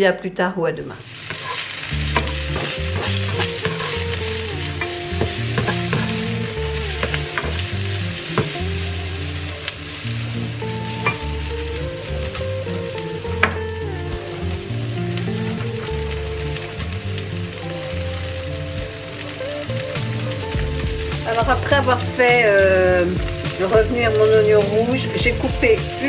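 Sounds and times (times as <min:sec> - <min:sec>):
background music: 0:00.0 - 0:26.0
onion sizzling in oil: 0:01.0 - 0:26.0
spatula scraping a pan: 0:01.2 - 0:07.6.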